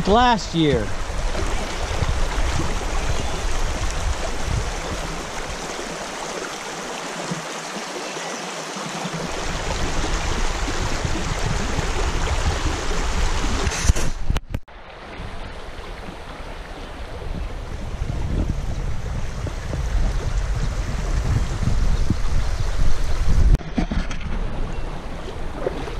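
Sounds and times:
river water rushing: 0.0 - 13.7, 14.7 - 18.1.

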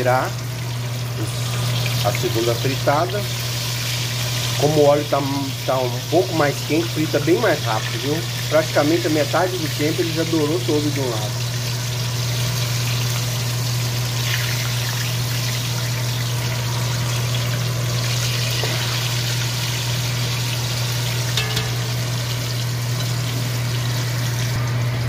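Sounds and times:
fish deep-frying in oil: 0.0 - 25.0
low hum: 14.5 - 25.0.

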